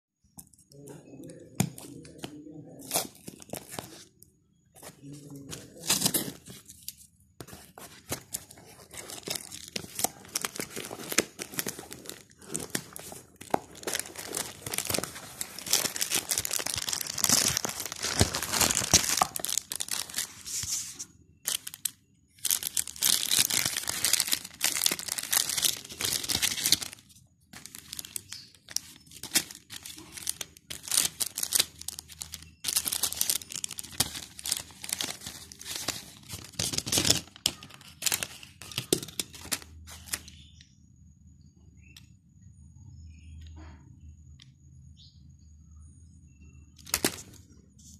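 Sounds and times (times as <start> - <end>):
plastic blister pack handling: 4.8 - 40.4, 46.8 - 47.4
plastic packaging tearing and crinkling: 8.0 - 40.3, 46.8 - 47.4.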